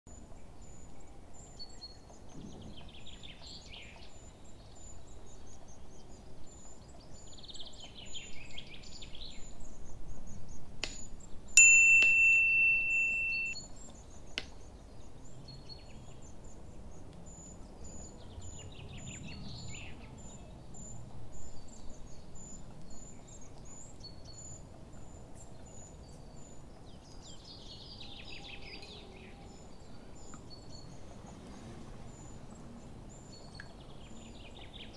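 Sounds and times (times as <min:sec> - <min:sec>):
small birds chirping: 0:00.1 - 0:34.9
bright ringing ding: 0:11.6 - 0:13.6.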